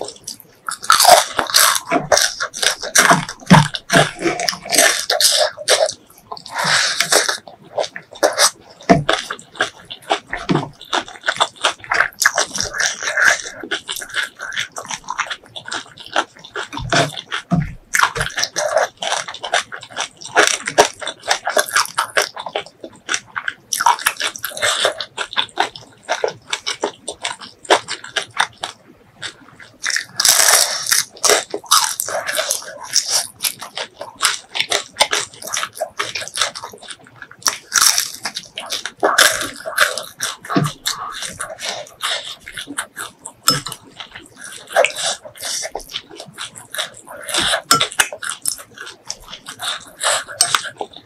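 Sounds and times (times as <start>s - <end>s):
crunchy chewing of fried fish: 0.0s - 51.0s.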